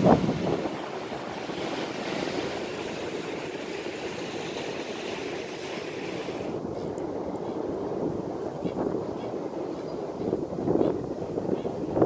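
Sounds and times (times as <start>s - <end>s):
ocean surf breaking on rocks: 0.0s - 7.2s.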